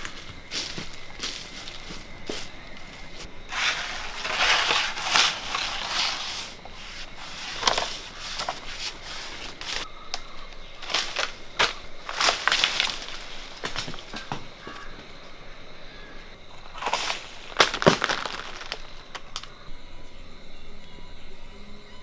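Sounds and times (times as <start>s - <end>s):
leaves and twigs rustling: 0.0s - 19.7s
sharp snaps and knocks: 7.6s - 15.0s, 16.6s - 19.6s.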